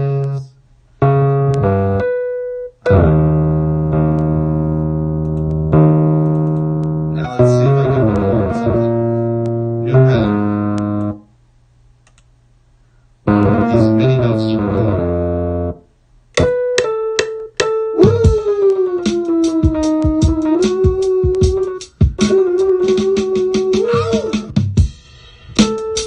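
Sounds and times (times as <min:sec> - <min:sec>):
electronic vocal synth tones: 0:07.2 - 0:09.1, 0:18.0 - 0:24.5.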